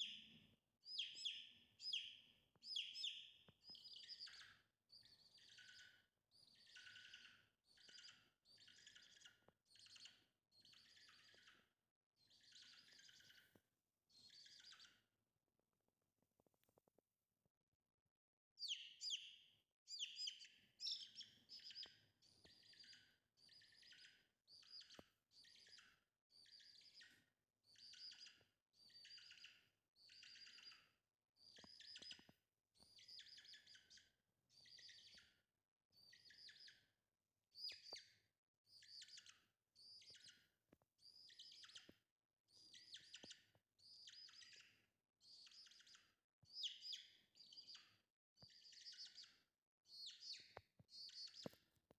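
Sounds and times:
chick peeping: 20.0 - 23.0.

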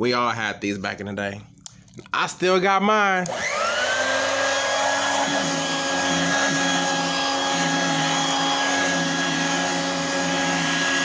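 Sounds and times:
handheld vacuum motor whine: 3.3 - 11.0.

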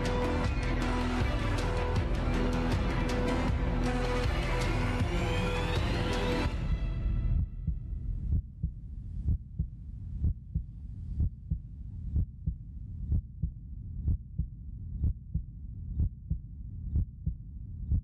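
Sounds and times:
suspense music: 0.0 - 8.5
heartbeat thumps: 7.0 - 18.0.

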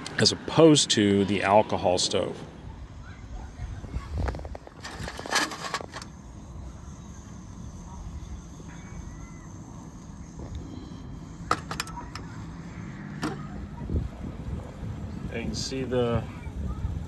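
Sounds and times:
wind on microphone: 2.6 - 5.3, 13.7 - 17.0
stove burner rushing: 4.2 - 6.2.

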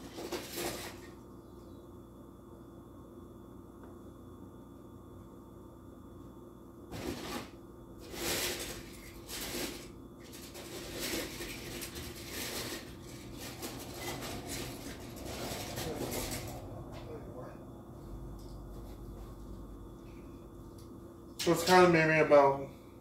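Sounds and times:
rustling and clattering of things: 0.0 - 1.2, 6.9 - 17.2
faint steady hum: 0.0 - 23.0.

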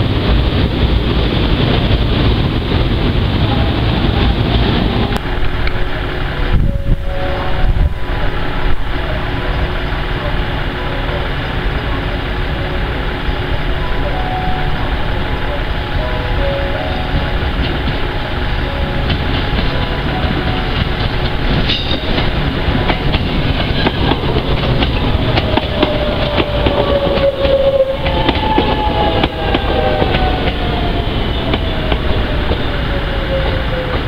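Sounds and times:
electric train passing: 0.0 - 34.0
train whine falling in pitch: 3.4 - 34.0
wheels clicking over rail joints: 16.3 - 34.0.

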